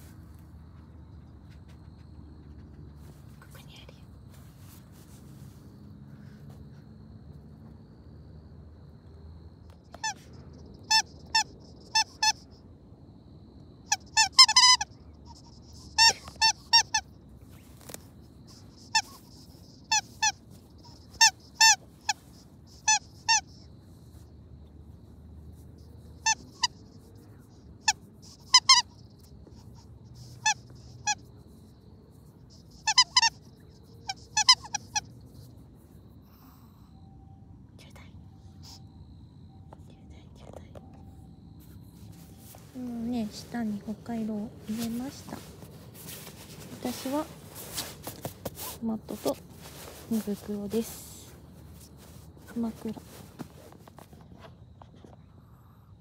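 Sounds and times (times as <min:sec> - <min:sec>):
squeaky dog toy squeaking: 0:10.8 - 0:12.4, 0:13.9 - 0:17.1, 0:18.7 - 0:23.6, 0:26.2 - 0:26.8, 0:27.8 - 0:29.0, 0:29.8 - 0:31.2, 0:32.6 - 0:33.4, 0:34.0 - 0:35.1.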